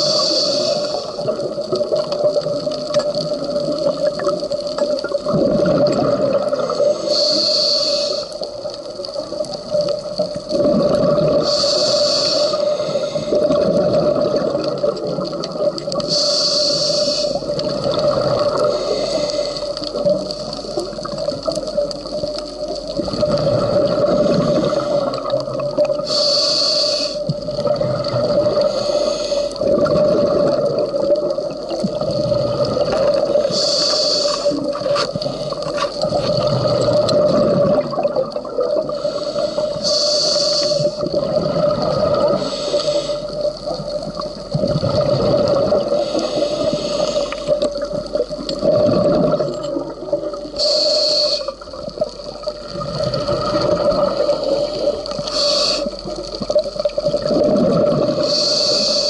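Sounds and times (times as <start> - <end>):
regulator inhalation hiss: 0.0 - 1.3, 6.6 - 8.6, 11.4 - 13.6, 16.0 - 17.7, 18.5 - 21.0, 24.1 - 25.4, 26.0 - 27.3, 28.6 - 29.6, 33.3 - 36.0, 38.8 - 41.1, 42.0 - 43.6, 45.8 - 47.7, 50.5 - 51.7, 54.1 - 56.2, 58.1 - 59.0
exhaled bubbles burbling: 0.0 - 7.1, 8.4 - 11.7, 12.7 - 16.1, 17.3 - 26.1, 27.2 - 33.7, 34.3 - 39.8, 40.8 - 50.6, 51.5 - 58.5.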